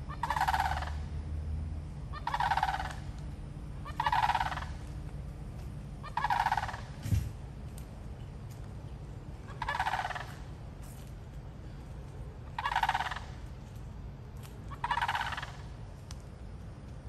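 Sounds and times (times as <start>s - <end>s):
cranes rattling calls: 0.1s - 1.1s, 2.1s - 3.2s, 3.8s - 4.9s, 6.0s - 7.2s, 9.4s - 10.6s, 12.4s - 13.4s, 14.6s - 15.8s.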